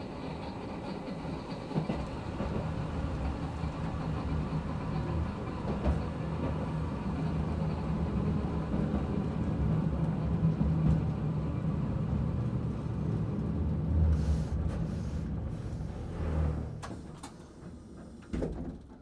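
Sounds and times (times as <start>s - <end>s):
tram rumbling on rails: 0.0s - 19.0s.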